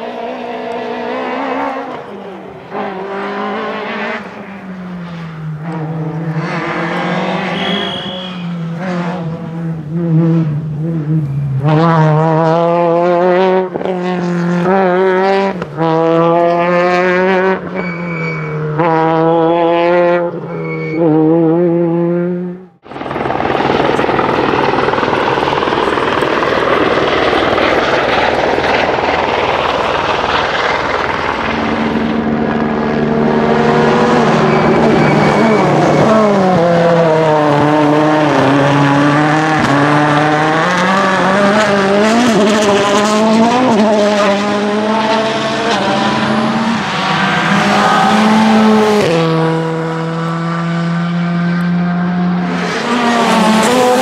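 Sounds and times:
car engine revving: 0:00.0 - 0:54.0
rushing noise: 0:22.8 - 0:43.8.

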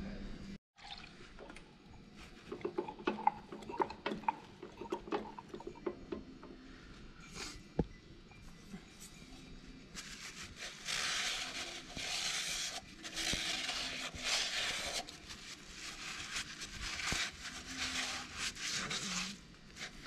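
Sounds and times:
rag scrubbing metal: 0:02.4 - 0:06.4.

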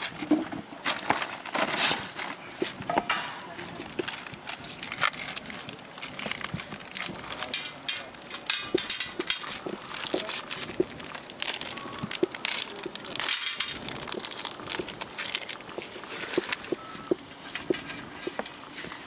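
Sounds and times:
plastic wrapper crinkling: 0:03.6 - 0:16.8.

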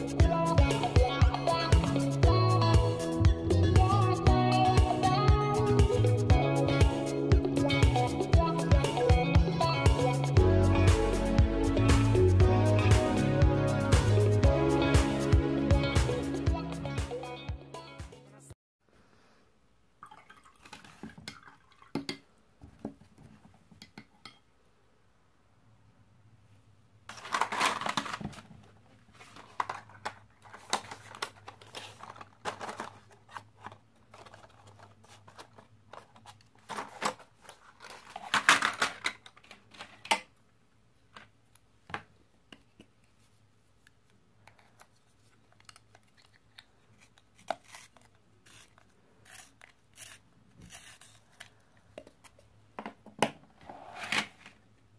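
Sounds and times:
pencil in handheld sharpener: 0:47.6 - 0:51.3.

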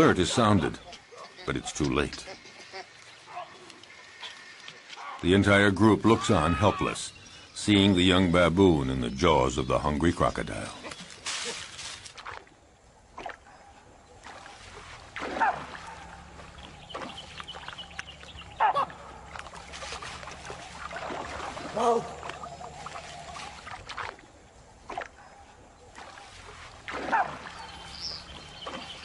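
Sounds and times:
water splashing: 0:08.8 - 0:29.0
baboons alarm barks: 0:18.5 - 0:19.0.

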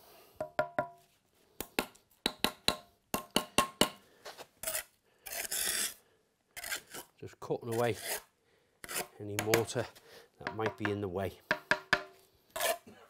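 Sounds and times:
trowel tapping brick: 0:01.6 - 0:04.0, 0:09.3 - 0:09.8, 0:10.4 - 0:12.1
trowel scraping mortar: 0:04.2 - 0:06.0, 0:06.6 - 0:10.0, 0:12.5 - 0:13.0.

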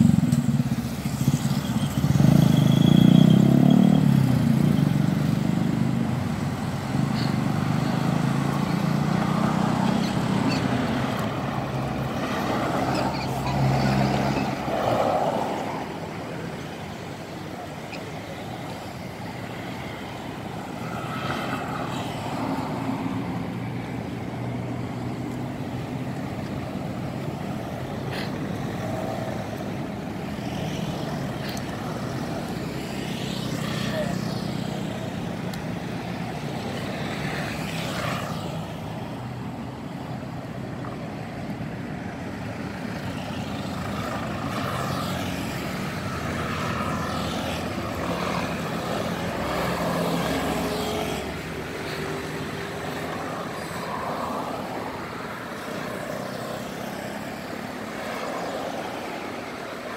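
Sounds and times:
vehicle engine running close: 0:00.0 - 0:14.7
road traffic noise: 0:00.0 - 0:59.9.

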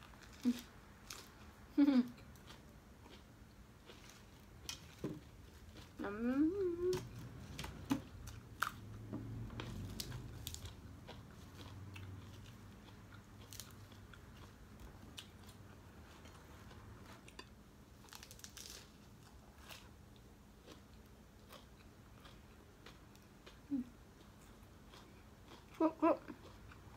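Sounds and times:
person chewing: 0:00.0 - 0:26.9
crisp crunches: 0:18.0 - 0:19.9.

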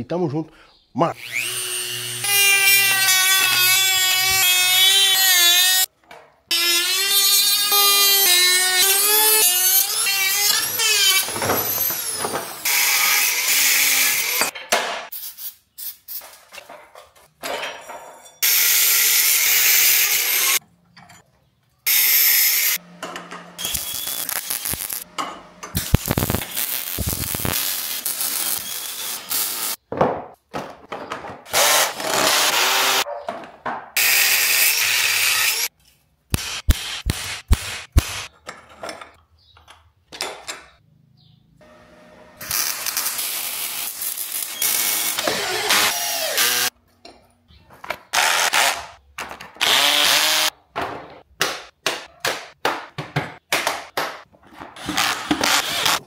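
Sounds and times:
power tools cutting and drilling: 0:01.2 - 0:05.9, 0:06.5 - 0:14.5, 0:18.4 - 0:20.6, 0:21.9 - 0:22.8, 0:23.6 - 0:25.0, 0:25.8 - 0:29.8, 0:31.5 - 0:33.0, 0:34.0 - 0:35.7, 0:42.4 - 0:46.7, 0:49.6 - 0:50.5, 0:54.8 - 0:56.0.

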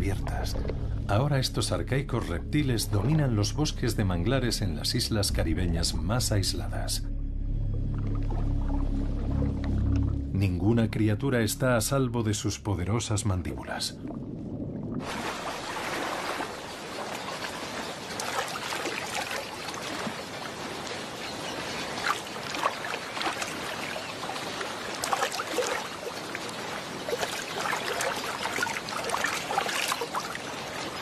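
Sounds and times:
water splashing and trickling: 0:00.0 - 0:07.0, 0:07.6 - 0:31.0
small sharp splashes: 0:15.0 - 0:31.0.

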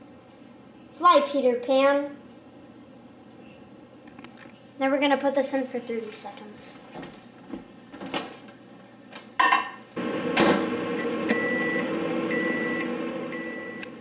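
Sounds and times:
microwave oven humming: 0:09.9 - 0:14.0
microwave oven clunk: 0:10.2 - 0:14.0
long beeps: 0:11.3 - 0:13.9.

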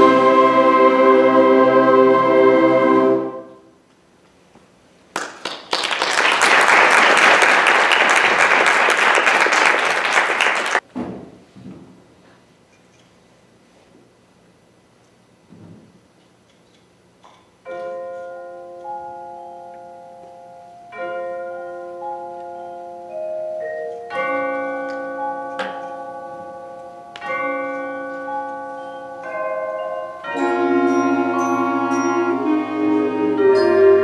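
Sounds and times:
concert band wind chords: 0:00.0 - 0:03.8, 0:17.7 - 0:34.0
mallet percussion bell-like notes: 0:17.7 - 0:34.0.

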